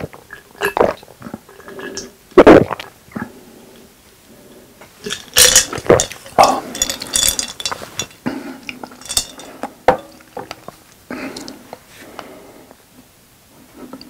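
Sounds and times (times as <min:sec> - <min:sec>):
person drinking and swallowing: 0:00.0 - 0:03.4, 0:05.0 - 0:11.8
glass clinks: 0:05.1 - 0:08.2, 0:09.0 - 0:10.2.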